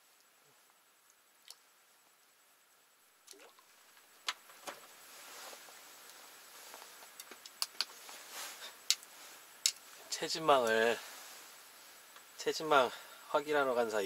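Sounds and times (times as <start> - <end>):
light rustling: 3.6 - 12.3.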